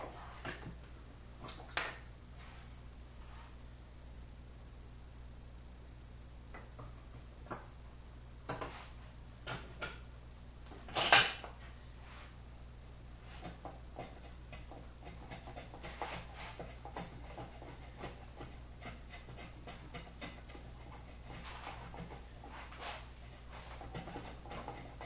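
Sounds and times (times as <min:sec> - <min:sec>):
router plane scraping wood: 0:13.4 - 0:25.0.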